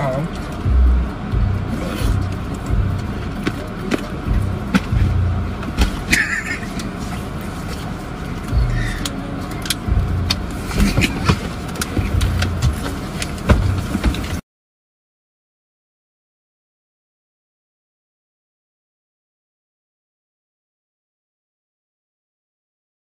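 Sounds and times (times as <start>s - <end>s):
low car hum: 0.0s - 14.4s
bumps knocks and rustling: 2.1s - 6.3s, 10.3s - 14.4s.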